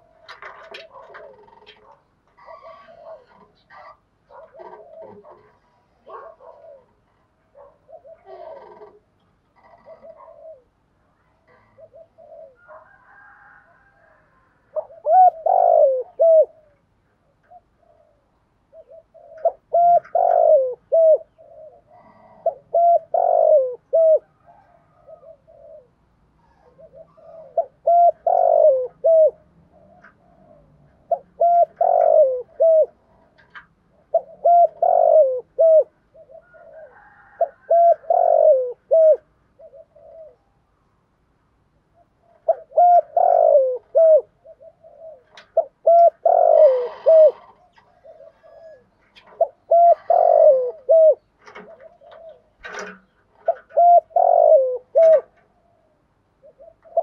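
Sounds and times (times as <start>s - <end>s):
dove cooing: 0.0s - 40.8s, 41.8s - 57.0s.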